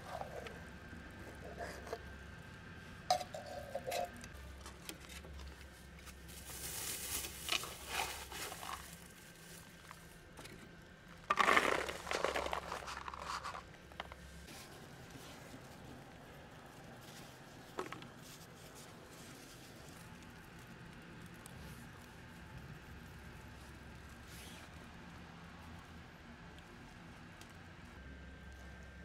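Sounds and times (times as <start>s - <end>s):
rustling and crinkling: 3.3s - 29.0s
kibble rattling into foam tray: 11.3s - 13.7s.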